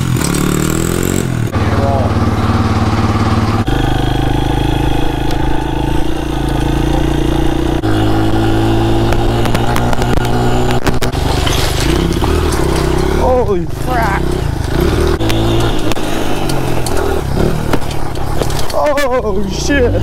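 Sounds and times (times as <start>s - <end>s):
pit bike engine running: 0.0s - 20.0s
sharp clatters: 4.3s - 19.4s.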